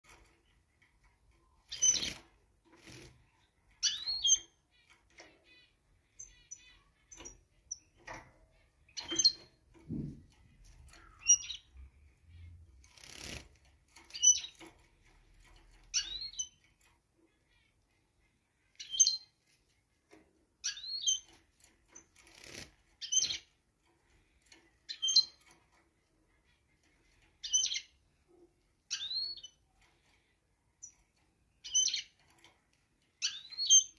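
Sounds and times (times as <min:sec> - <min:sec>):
finches chirping: 0:01.6 - 0:02.2, 0:02.8 - 0:10.0, 0:10.8 - 0:13.4, 0:14.1 - 0:14.6, 0:15.8 - 0:16.6, 0:18.6 - 0:19.4, 0:20.6 - 0:21.3, 0:22.0 - 0:23.5, 0:26.3 - 0:28.0, 0:28.9 - 0:30.9, 0:31.6 - 0:32.2, 0:33.2 - 0:33.9
wing flutters: 0:12.8 - 0:14.1.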